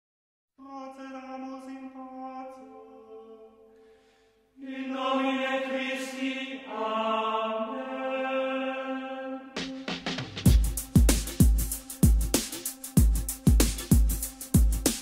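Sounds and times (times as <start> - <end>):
chant-like background music: 4.6 - 10.0.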